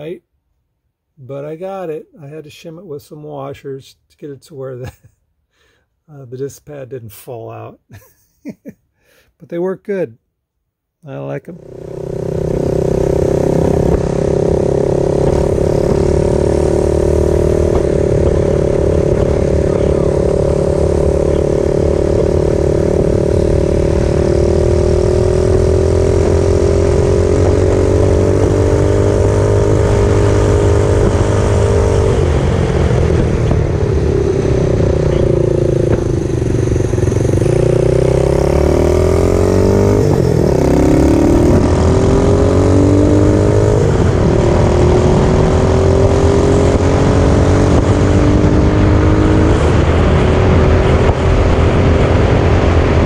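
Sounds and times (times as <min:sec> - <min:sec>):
road and wind noise: 0:11.5 - 0:53.0.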